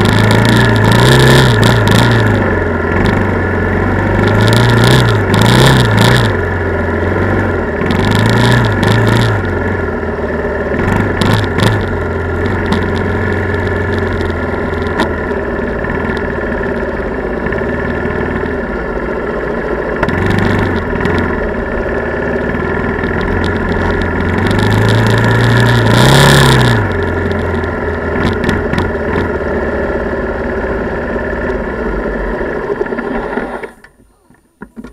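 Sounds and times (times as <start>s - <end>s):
quad engine revving: 0.0s - 33.9s.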